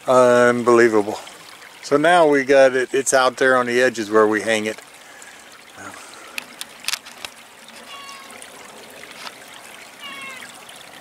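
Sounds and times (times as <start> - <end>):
creek water running: 0.0 - 11.0
short pitched calls: 7.8 - 8.4, 10.0 - 10.6.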